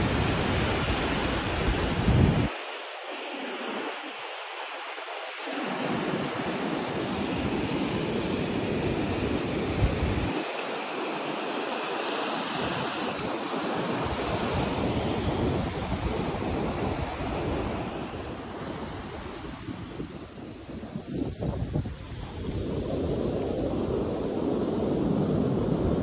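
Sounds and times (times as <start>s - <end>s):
wind buffeting microphone: 0.0s - 2.6s, 5.6s - 10.9s, 12.5s - 26.0s
wind rushing: 13.0s - 26.0s.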